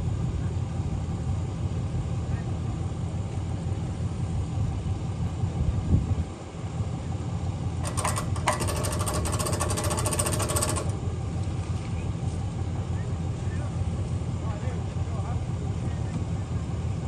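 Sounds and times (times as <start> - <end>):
truck engine idling: 0.0 - 17.0
metallic winch ratcheting: 7.8 - 11.0.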